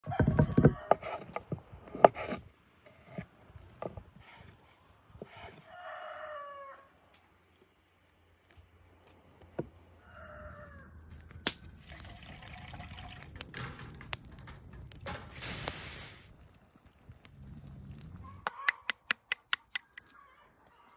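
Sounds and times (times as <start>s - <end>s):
rooster crowing: 5.6s - 7.0s, 10.0s - 11.0s
wood fire crackling: 10.7s - 20.9s.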